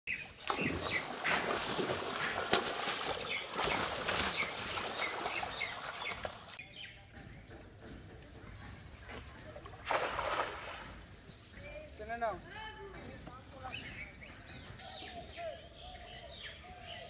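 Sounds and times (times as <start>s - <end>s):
fish thrashing and splashing water: 0.3s - 6.6s, 9.6s - 11.0s.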